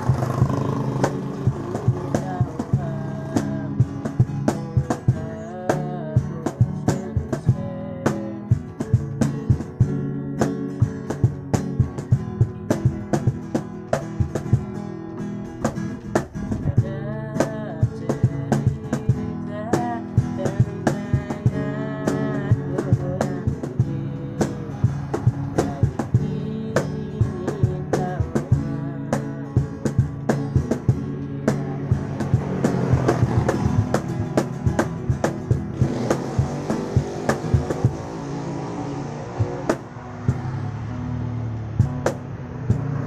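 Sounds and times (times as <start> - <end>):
person singing: 0.0 - 10.0, 16.1 - 38.4
cajon slapped by hand: 0.0 - 38.1, 39.4 - 40.5, 41.8 - 43.0
acoustic guitar strumming: 0.0 - 43.0.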